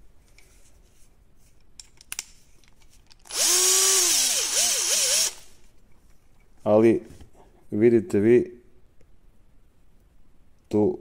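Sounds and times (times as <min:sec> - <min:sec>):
cordless drill motor spinning: 0:03.3 - 0:05.5.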